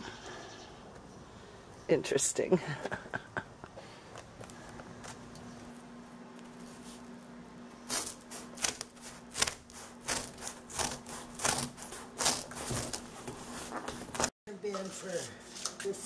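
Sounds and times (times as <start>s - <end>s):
scissors snipping cardboard: 7.9s - 13.1s.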